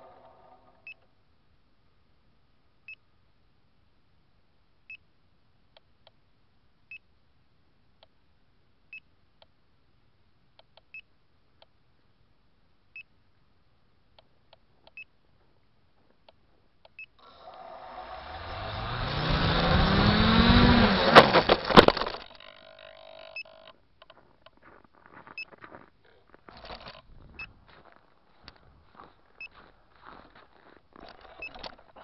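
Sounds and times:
drone motors: 0:17.2 - 0:23.7.

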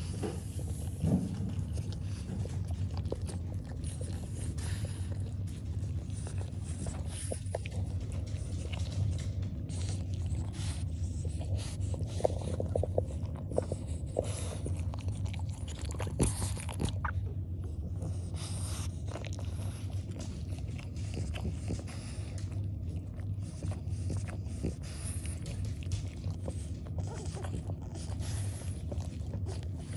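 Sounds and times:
puppies suckling: 0:00.0 - 0:29.9
steady low hum: 0:00.0 - 0:29.9.

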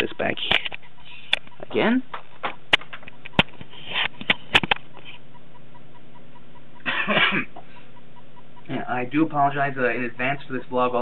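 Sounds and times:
camera handling clicks and knocks: 0:02.1 - 0:04.9.

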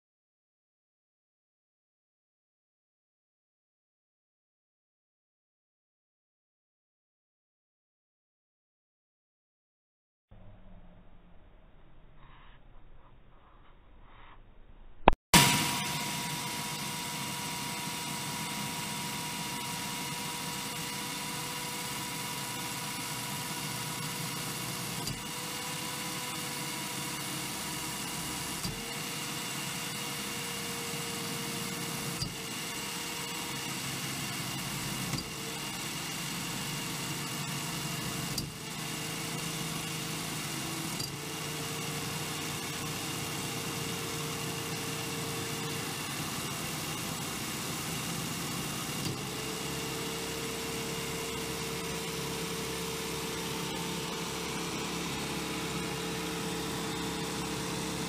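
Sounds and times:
electric motor whine: 0:15.4 - 0:58.0.

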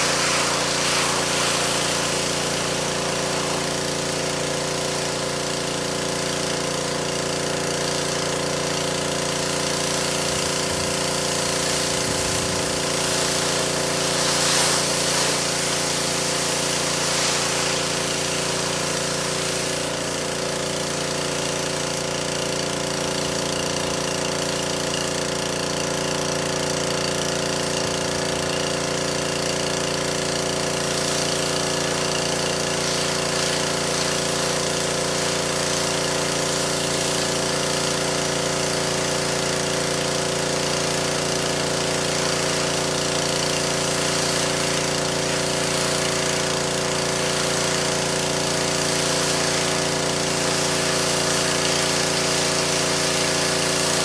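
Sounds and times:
water spray hissing: 0:00.0 - 0:22.0, 0:27.3 - 0:54.0
pressure washer motor: 0:00.0 - 0:54.0.

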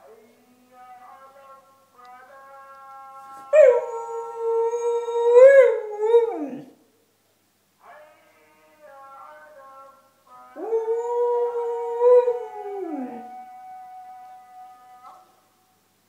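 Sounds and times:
dog howling: 0:03.5 - 0:06.7, 0:10.6 - 0:15.3.

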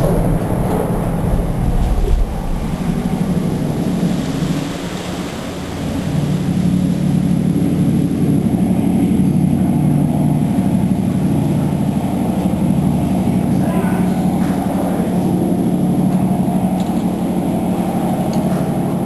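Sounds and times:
boat diesel engines droning: 0:00.0 - 0:19.0.

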